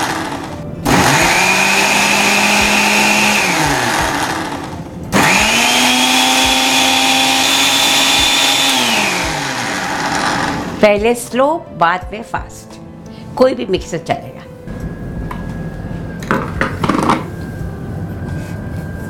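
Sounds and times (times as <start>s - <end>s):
blender motor churning: 0.0s - 10.8s.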